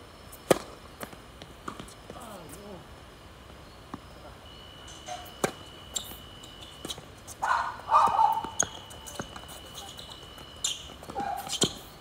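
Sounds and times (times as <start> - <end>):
tennis ball hit by racket: 0.5 - 1.9
ball bouncing on hard court: 8.0 - 11.8.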